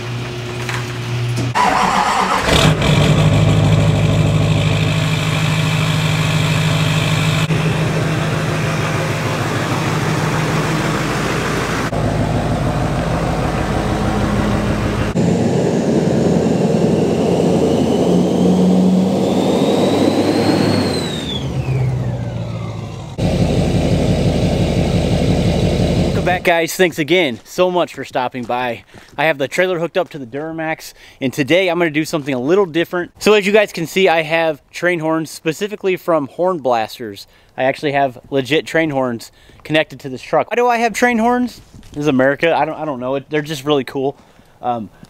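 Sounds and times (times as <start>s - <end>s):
diesel engine running and revving: 1.6s - 26.5s
turbo whistle: 17.2s - 21.9s.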